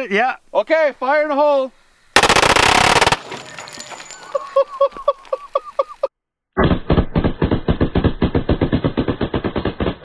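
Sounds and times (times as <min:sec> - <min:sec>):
pistols firing automatic bursts: 0:02.2 - 0:04.2.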